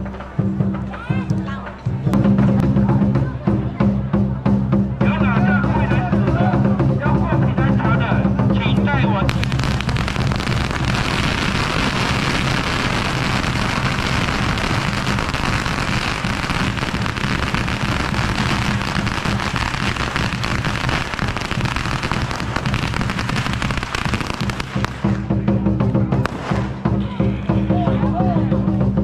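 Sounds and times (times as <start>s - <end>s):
firecrackers crackling: 9.2s - 25.4s, 26.2s - 27.0s.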